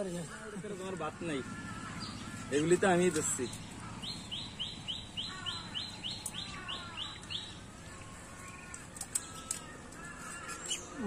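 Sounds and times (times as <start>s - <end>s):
lower bird call: 3.5s - 7.6s.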